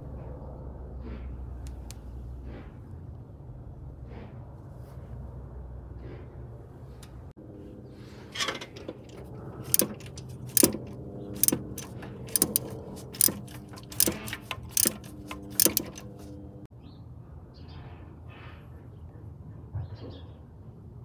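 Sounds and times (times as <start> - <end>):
ratchet wrench clicking: 9.1 - 16.3.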